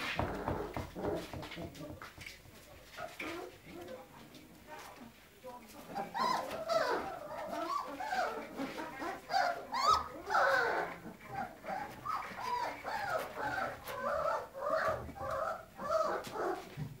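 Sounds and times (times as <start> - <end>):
puppies whining: 6.0 - 16.7.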